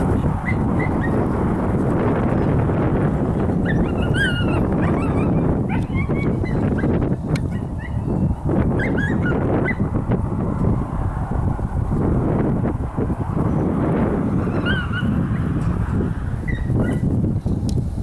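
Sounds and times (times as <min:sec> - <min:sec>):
wind rumble on microphone: 0:00.0 - 0:18.0
dog whining and yipping: 0:00.4 - 0:01.2, 0:03.6 - 0:09.8, 0:14.4 - 0:15.2, 0:16.5 - 0:17.0.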